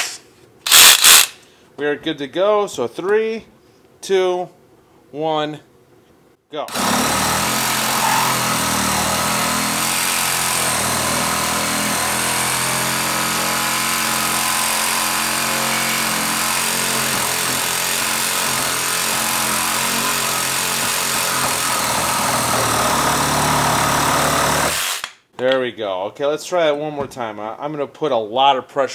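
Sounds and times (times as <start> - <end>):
reciprocating saw cutting wood: 6.7 - 25.1.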